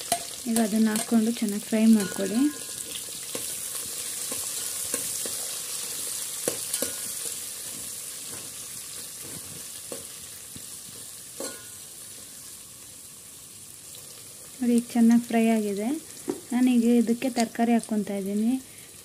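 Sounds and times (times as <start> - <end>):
onions sizzling in hot oil: 0.0 - 19.0
ladle clinking and scraping pot: 1.9 - 2.8, 11.4 - 11.8.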